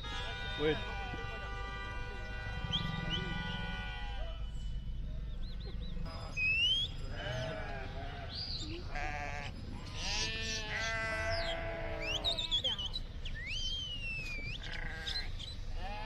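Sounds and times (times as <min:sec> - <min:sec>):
sheep bleating: 0:00.0 - 0:04.5, 0:07.0 - 0:12.8, 0:14.6 - 0:16.0.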